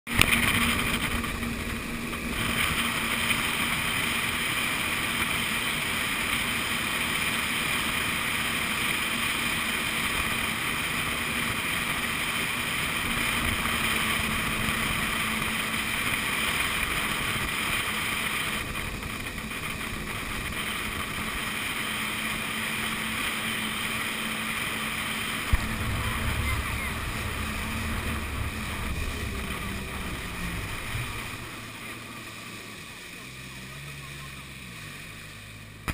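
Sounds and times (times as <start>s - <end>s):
rush of water and wind: 0.1s - 35.9s
watercraft engine hum: 0.1s - 35.9s.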